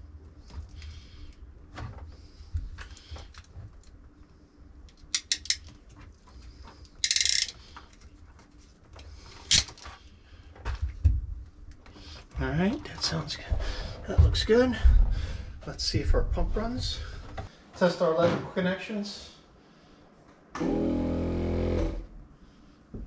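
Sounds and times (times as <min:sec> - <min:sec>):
wires clicking and rustling: 0:00.4 - 0:13.5.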